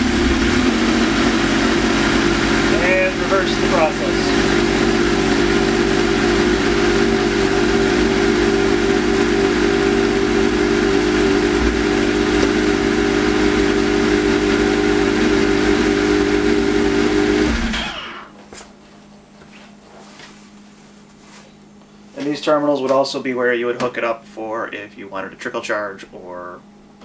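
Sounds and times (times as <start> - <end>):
snowmobile engine idling: 0.0 - 18.0.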